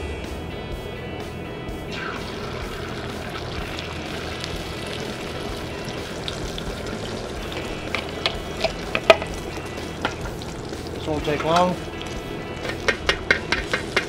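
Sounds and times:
eggs sizzling on hot metal: 1.9 - 14.0
fork scraping and tapping bowl: 12.6 - 14.0.

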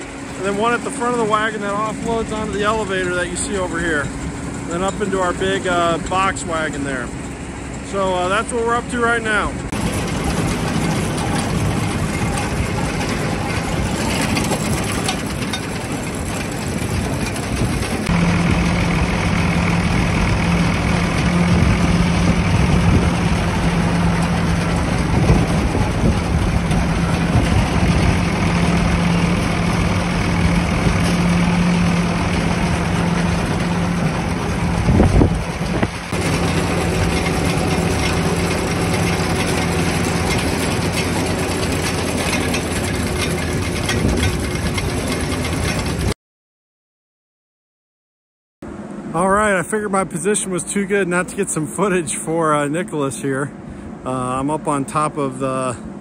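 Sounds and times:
tractor engine and conveyor hum: 0.0 - 46.2, 48.7 - 56.0.

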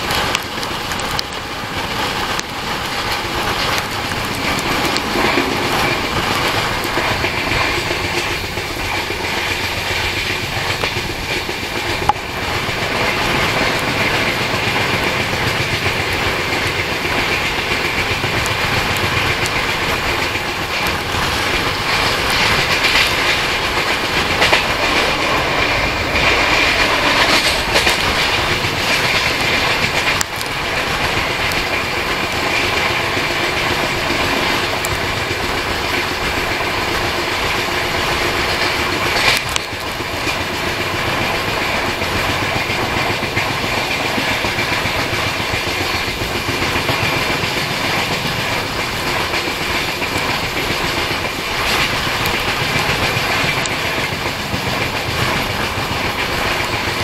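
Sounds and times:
train wheels clattering over rail joints: 0.0 - 57.0
rush of air: 1.8 - 15.7.

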